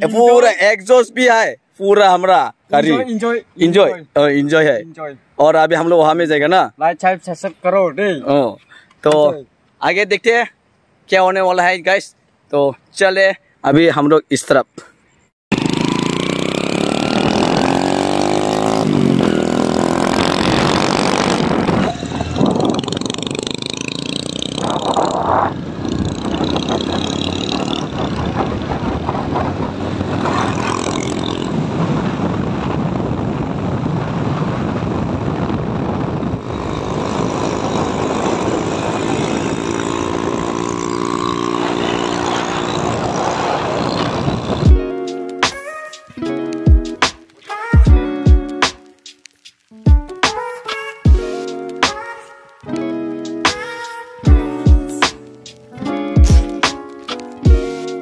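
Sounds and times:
motorcycle engine at speed: 15.5s - 44.8s
wind noise on microphone: 15.6s - 45.0s.

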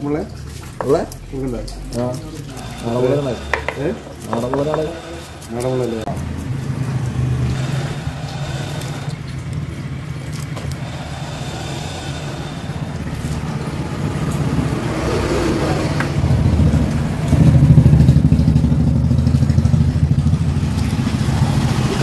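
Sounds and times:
low motor rumble: 0.0s - 22.0s
knife scraping on wooden board: 1.9s - 6.5s.

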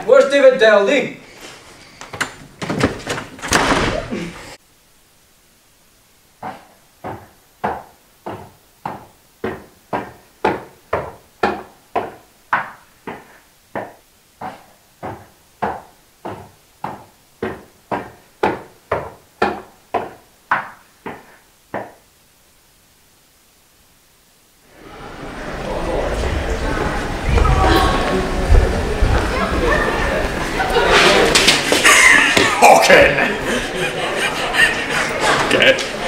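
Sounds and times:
footsteps climbing stairs: 1.5s - 4.0s.

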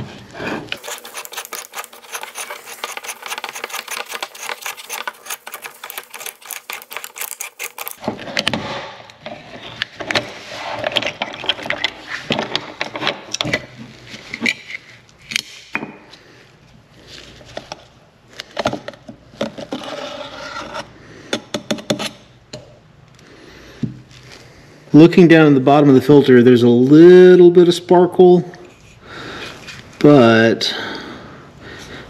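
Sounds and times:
metallic knocks and scrapes: 0.6s - 8.6s.

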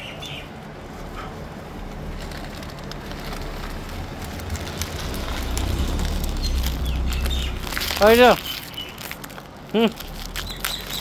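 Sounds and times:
low street rumble: 0.0s - 11.0s.

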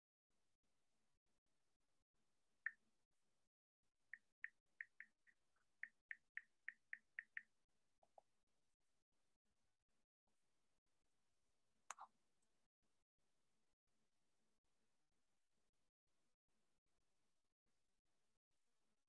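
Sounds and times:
faint computer keyboard typing: 4.2s - 7.5s.

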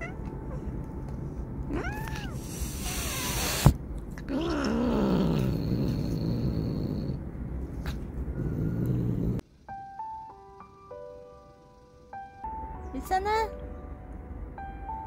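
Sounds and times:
cat meowing: 1.7s - 3.7s
cat growling yowl: 1.7s - 7.2s
cat hissing: 1.8s - 7.2s.

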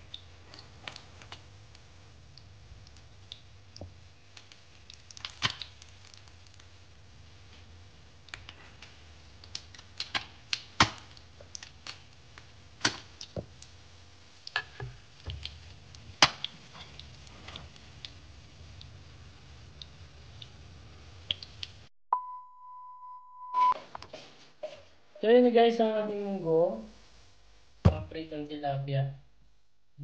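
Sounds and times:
fish frying in hot oil: 0.0s - 21.8s.

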